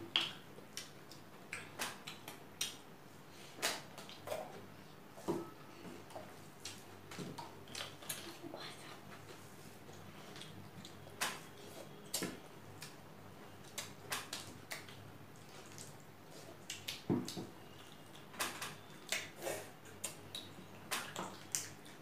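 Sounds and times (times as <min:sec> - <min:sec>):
wet chewing smacks: 0:13.6 - 0:18.3.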